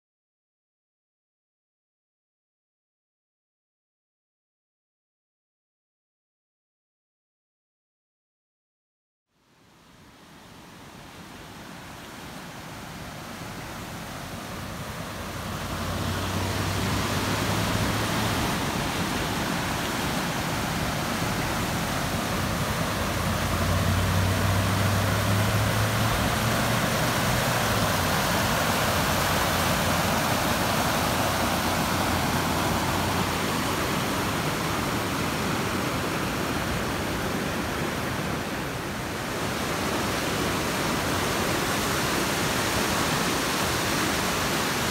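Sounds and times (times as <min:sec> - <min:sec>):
floodwater rushing in creek: 0:09.6 - 0:44.9.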